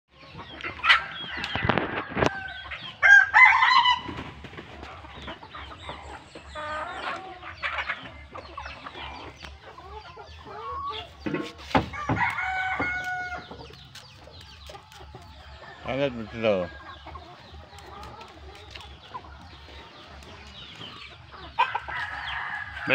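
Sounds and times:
chickens clucking: 0.1s - 22.9s
rooster crowing: 1.0s - 4.1s, 11.9s - 13.4s, 21.7s - 22.9s.

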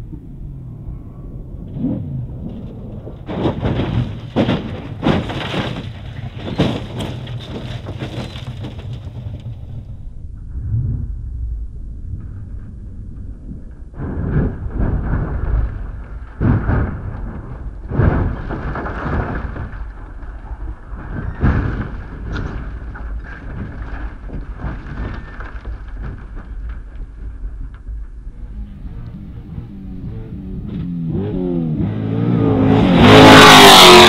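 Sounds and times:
steady low rumble: 0.0s - 33.2s
heavy crashing impacts: 3.0s - 10.0s.

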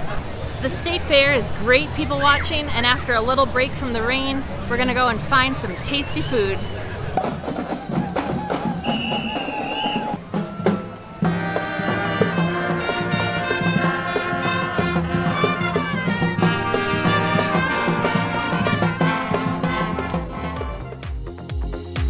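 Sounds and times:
horns playing melody: 8.8s - 21.4s.

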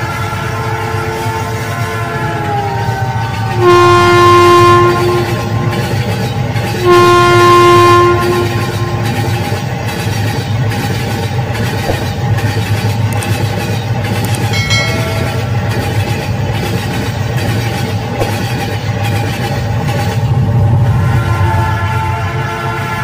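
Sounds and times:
brief high tone: 14.6s - 16.3s.

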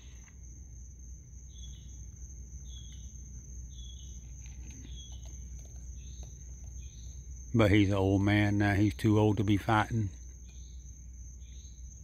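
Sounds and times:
insect chirp: 0.0s - 12.0s
insect high-pitched trill: 0.0s - 12.0s
low steady hum: 0.0s - 12.0s.

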